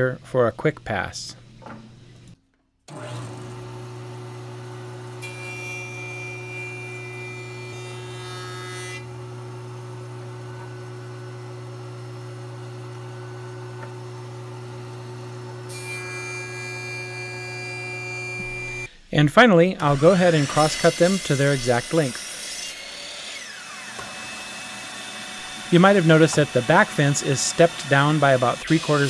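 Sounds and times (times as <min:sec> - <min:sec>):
jointer motor hum: 0:02.9 - 0:05.3, 0:09.0 - 0:15.7, 0:23.4 - 0:29.0
jointer cutting plywood edge: 0:02.9 - 0:18.9, 0:19.8 - 0:29.0.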